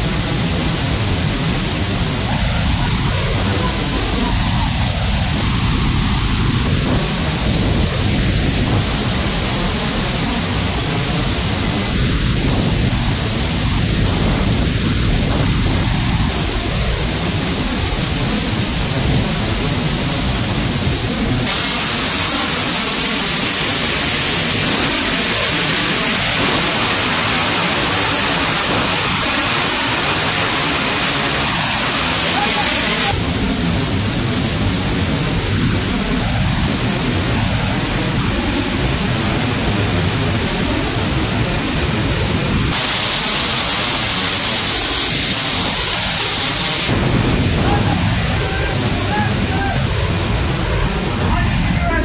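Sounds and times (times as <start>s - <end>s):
high engine whine: 0.0s - 52.0s
jet engines roaring: 0.0s - 52.0s
rushing hiss of slipstream: 21.5s - 33.3s, 42.7s - 51.1s.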